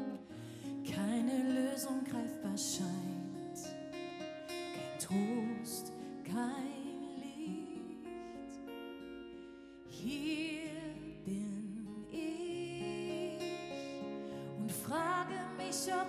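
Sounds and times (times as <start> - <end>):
acoustic guitar: 0.0 - 16.0
woman singing with vibrato: 0.9 - 3.7, 5.0 - 8.2, 9.9 - 13.8, 14.4 - 16.0.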